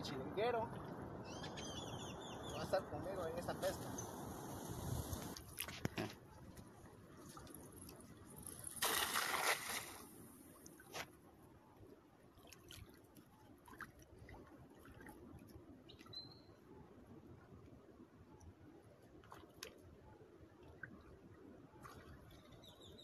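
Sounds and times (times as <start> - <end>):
net splashing on water: 8.6 - 10.2
water sloshing and dripping: 12.3 - 16.2.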